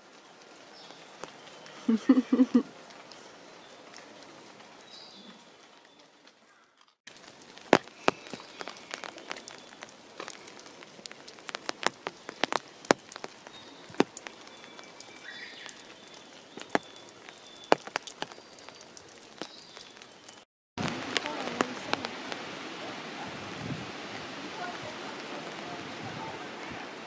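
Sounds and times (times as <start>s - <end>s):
rain hiss: 0.0s - 6.4s, 7.1s - 27.0s
water drops tapping: 7.7s - 20.0s.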